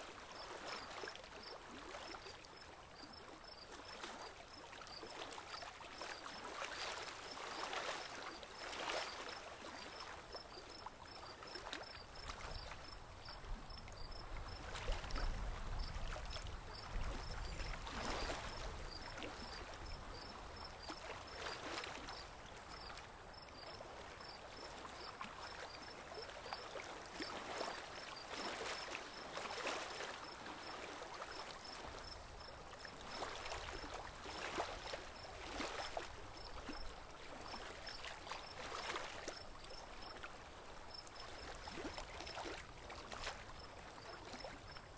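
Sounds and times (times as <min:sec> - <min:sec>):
water lapping around a boat: 0:00.0 - 0:44.9.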